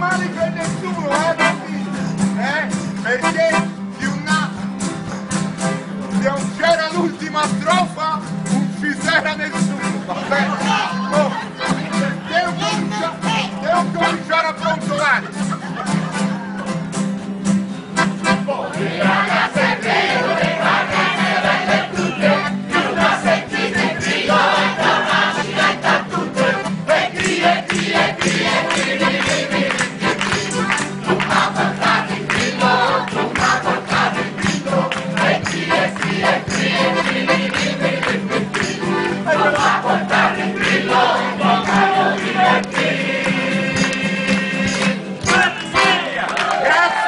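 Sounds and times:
acoustic guitars strumming: 0.0s - 46.7s
hands clapping in rhythm: 5.0s - 5.6s, 19.1s - 47.0s
crowd singing folk song: 8.6s - 13.7s, 15.4s - 17.3s, 17.9s - 47.0s.

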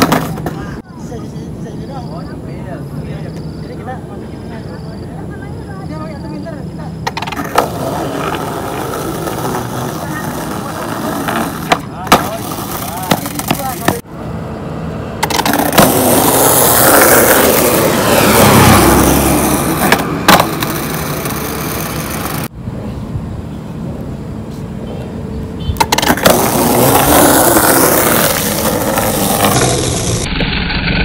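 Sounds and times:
skateboard clacking on ground: 0.0s - 0.8s, 7.0s - 14.1s, 15.2s - 18.2s, 19.6s - 22.5s, 25.8s - 30.2s
skateboard wheels rolling on concrete: 0.0s - 1.4s, 2.0s - 14.2s, 14.9s - 31.0s.

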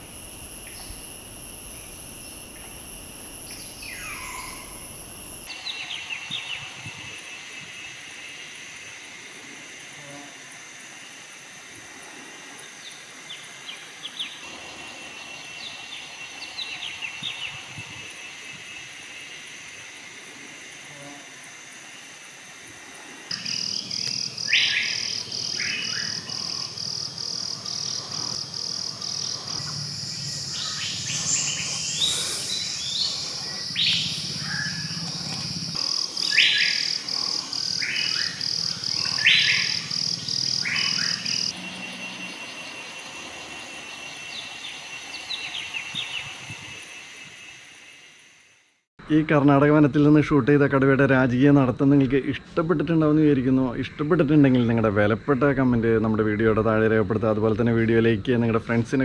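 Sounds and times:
high pulsing insect drone: 0.0s - 59.0s
birds chirping and whistling: 0.4s - 6.7s, 23.3s - 26.7s, 29.0s - 42.8s.

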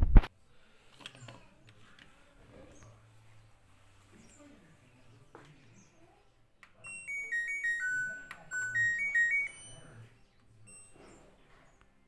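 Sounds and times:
electronic beep tune: 6.9s - 10.0s.

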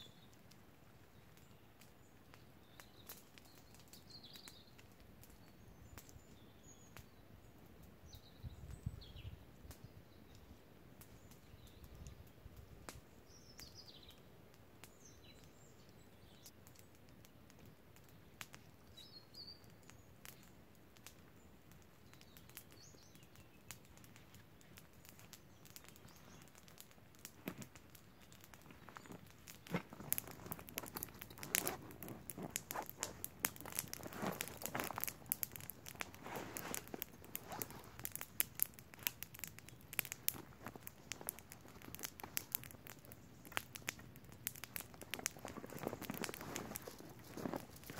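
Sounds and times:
faint songbird chirps: 0.0s - 20.6s, 21.2s - 27.2s
crinkling and crumpling: 23.8s - 47.9s.

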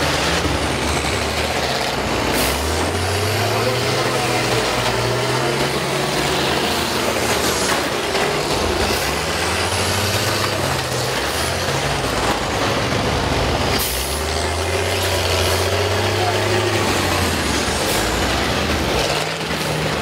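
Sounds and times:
bus engines revving: 0.0s - 20.0s.

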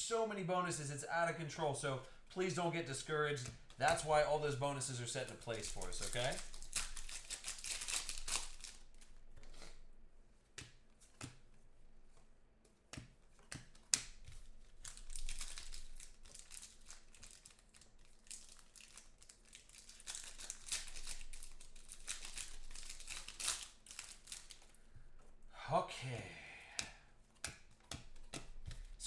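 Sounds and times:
foil wrappers crinkling and tearing: 3.8s - 9.1s, 14.7s - 24.8s.

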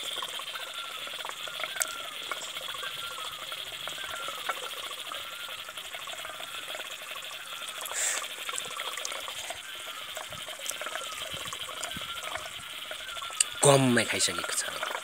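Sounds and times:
rapid high ticking calls: 0.0s - 15.0s
brief hiss: 7.9s - 8.3s.

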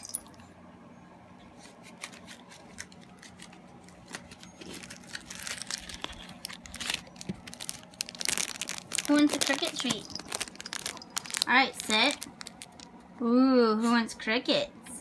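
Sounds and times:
cardboard box crinkling: 2.0s - 12.8s.

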